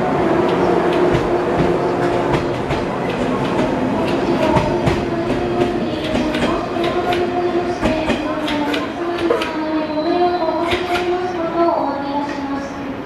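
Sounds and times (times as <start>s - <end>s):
train wheels clicking over joints: 0.2s - 9.7s, 10.6s - 11.2s.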